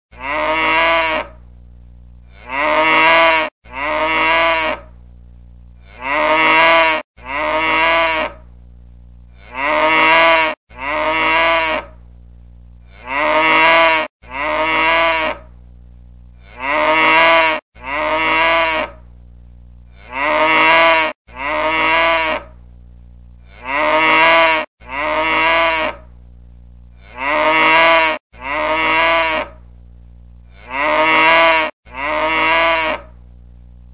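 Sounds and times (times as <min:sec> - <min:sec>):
cow mooing: 0:00.1 - 0:01.4, 0:02.3 - 0:04.8, 0:05.8 - 0:08.4, 0:09.4 - 0:11.9, 0:12.9 - 0:15.4, 0:16.4 - 0:19.0, 0:20.0 - 0:22.5, 0:23.5 - 0:26.0, 0:27.0 - 0:29.6, 0:30.5 - 0:33.1
faint low hum: 0:01.2 - 0:02.9, 0:03.7 - 0:06.4, 0:08.2 - 0:09.9, 0:11.8 - 0:13.4, 0:15.4 - 0:16.9, 0:17.8 - 0:20.4, 0:22.4 - 0:24.0, 0:25.9 - 0:27.5, 0:29.4 - 0:31.0, 0:33.0 - 0:33.9.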